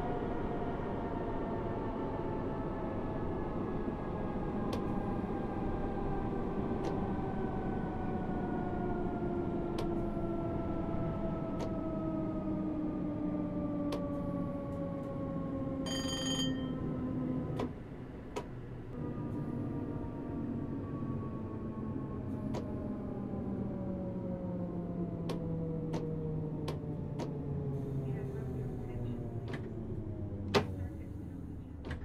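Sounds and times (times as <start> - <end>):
electric train motor whine: 18.9 - 26.1.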